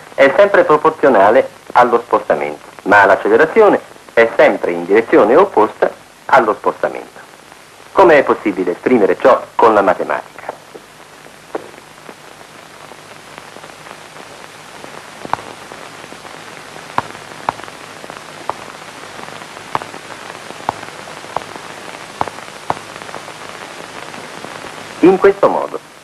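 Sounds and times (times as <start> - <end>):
steady hiss: 0.0 - 26.0
chalk tapping on blackboard: 15.3 - 15.5, 19.7 - 19.9.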